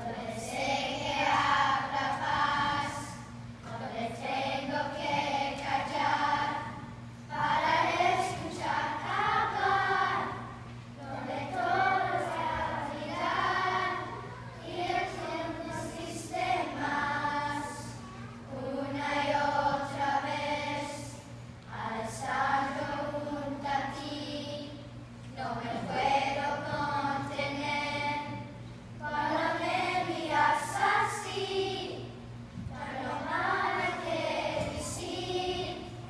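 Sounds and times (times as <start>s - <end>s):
children's choir singing: 0.0s - 36.0s.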